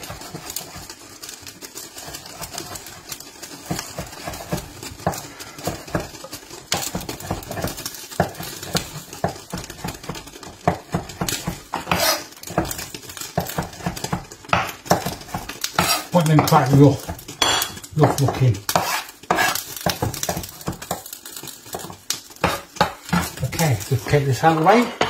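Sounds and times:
knife chopping on wooden board: 3.6s - 21.0s, 21.7s - 23.4s.

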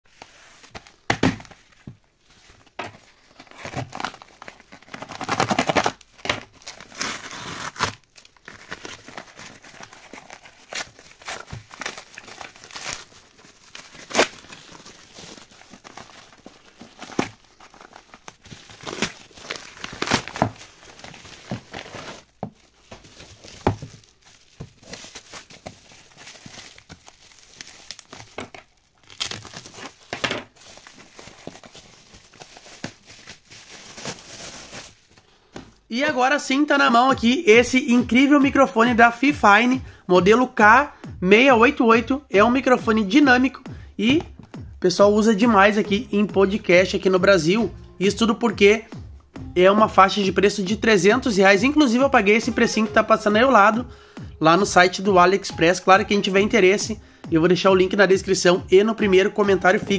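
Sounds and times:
packaging crinkling and rustling: 0.1s - 35.9s
packaging tearing: 3.1s - 35.2s
packaging crackling and snapping: 3.3s - 35.2s.

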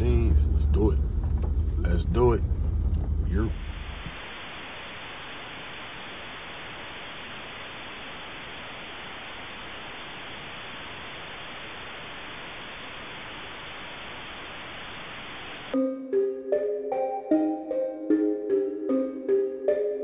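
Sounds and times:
steady static hiss: 0.0s - 15.8s.

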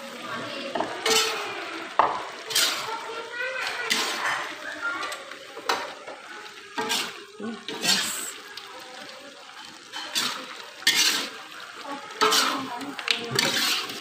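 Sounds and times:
meat frying in fat: 0.0s - 14.0s
metal spoon scraping wok: 0.2s - 1.6s, 2.4s - 4.6s, 6.7s - 8.4s, 9.6s - 14.0s.

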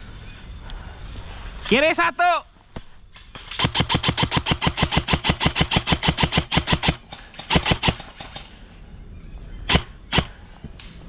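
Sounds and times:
airsoft gun firing: 3.4s - 8.5s, 9.7s - 10.4s.

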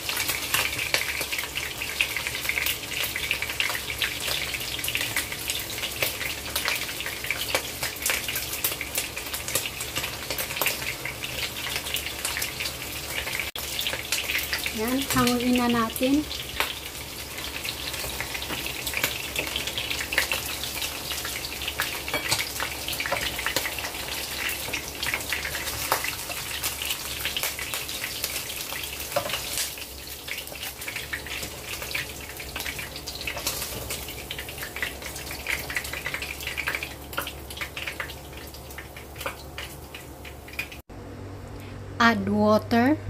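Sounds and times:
meat deep-frying in oil: 0.0s - 40.9s.

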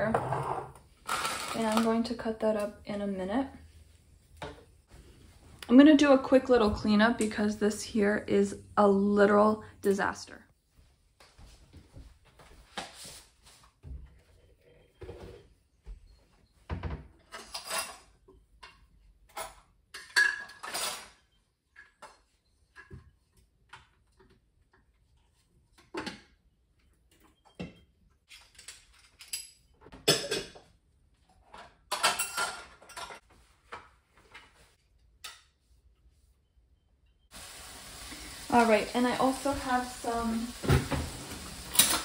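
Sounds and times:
crockery and utensils clattering: 19.3s - 21.3s, 28.4s - 30.6s, 31.4s - 33.2s.

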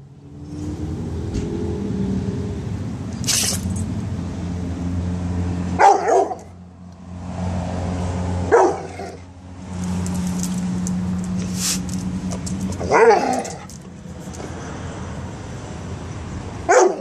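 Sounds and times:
dog barking: 5.8s - 6.5s, 8.5s - 9.2s, 12.8s - 13.6s, 16.7s - 17.0s.

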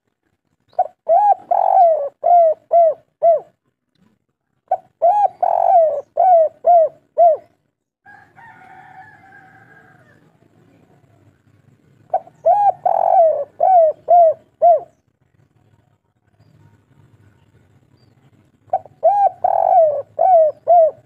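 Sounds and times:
dove cooing: 0.7s - 3.6s, 4.7s - 7.6s, 12.0s - 15.0s, 18.6s - 21.0s.

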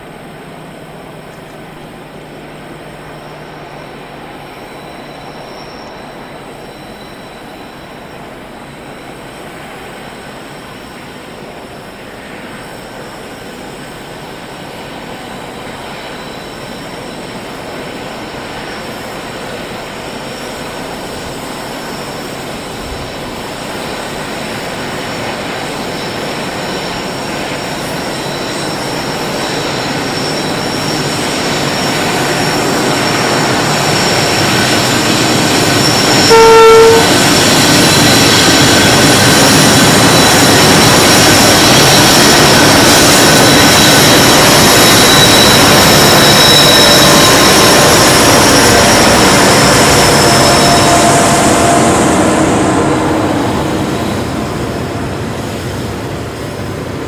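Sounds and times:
diesel locomotives hauling train: 0.0s - 57.0s
locomotive horn blast: 35.8s - 37.6s, 49.9s - 54.7s.

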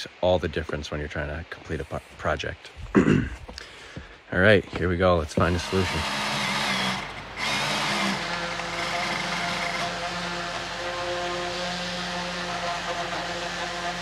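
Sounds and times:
motor running steadily: 5.4s - 14.0s.

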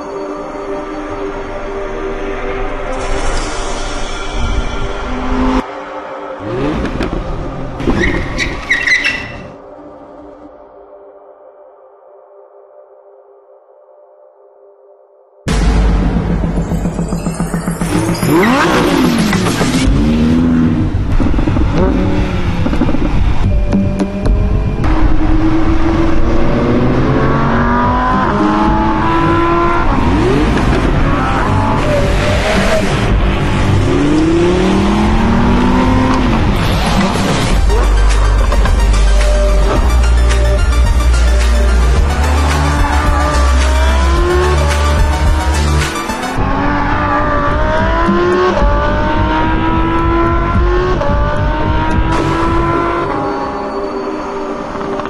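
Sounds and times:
car engine revving: 15.5s - 55.0s.

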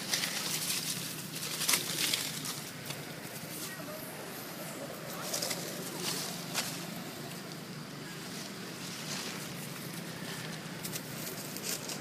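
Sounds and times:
dry leaves crackling underfoot: 0.0s - 12.0s.

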